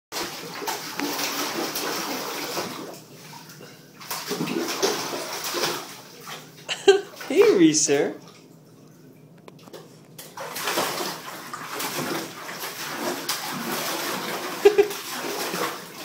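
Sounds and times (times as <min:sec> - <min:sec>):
water splashing in bathtub: 0:00.1 - 0:16.0.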